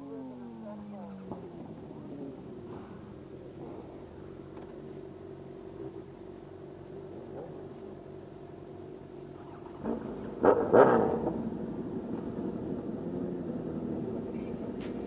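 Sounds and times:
motorcycle engines idling: 0.0 - 15.0
motorcycle throttle revs: 9.4 - 15.0.

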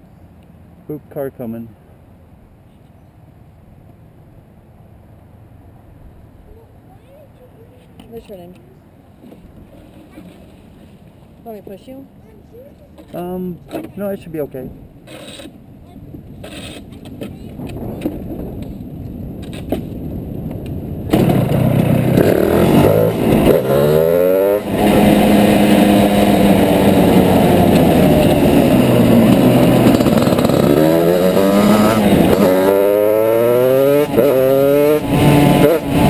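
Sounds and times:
go-kart engine revving: 21.1 - 36.0.

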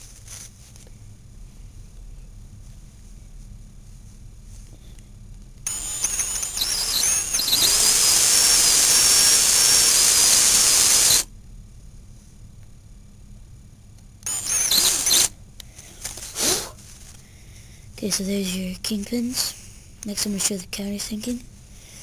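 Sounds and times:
cordless drill boring into wood: 5.7 - 11.3, 14.3 - 15.3.

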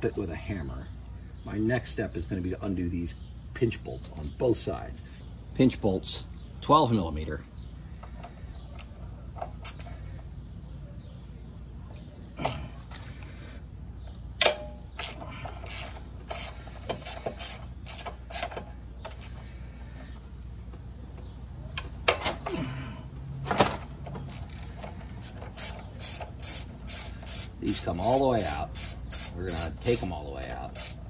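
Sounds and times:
socket ratchet clicking: 14.4 - 19.4, 24.2 - 30.1, 30.7 - 31.0.

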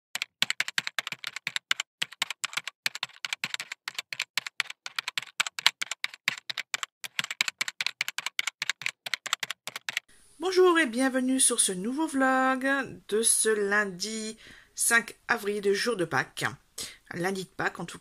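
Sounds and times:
keyboard typing clicks: 0.2 - 10.1.

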